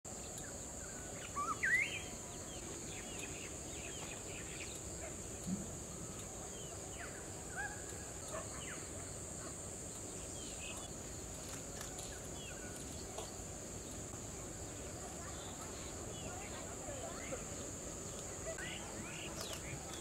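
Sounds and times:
high insect drone: 0.1 - 20.0
birds chirping: 0.2 - 14.2.

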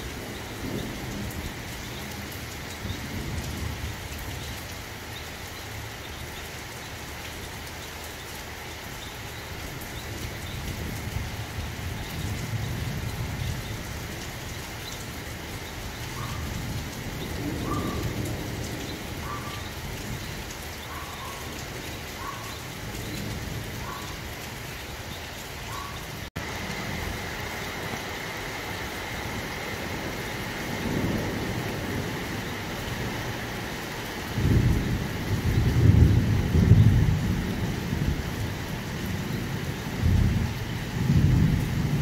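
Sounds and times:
heavy rain: 0.0 - 42.0
thunder rumbling: 15.1 - 24.4, 26.4 - 42.0.

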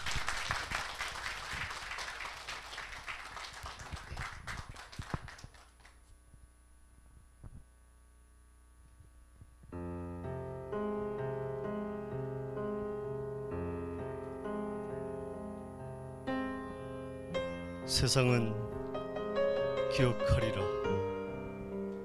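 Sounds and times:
audience applauding: 0.0 - 6.0
piano music: 9.8 - 22.0.

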